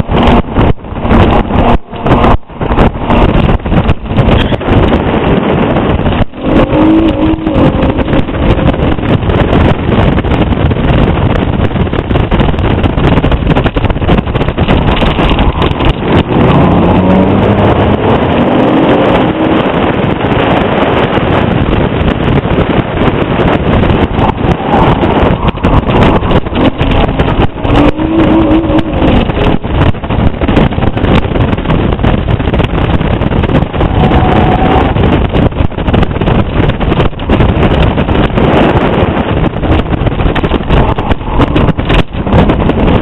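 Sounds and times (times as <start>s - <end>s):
car engine accelerating: 0.0s - 10.4s, 14.3s - 21.4s, 23.4s - 31.6s
wind rushing over microphone: 0.0s - 43.0s.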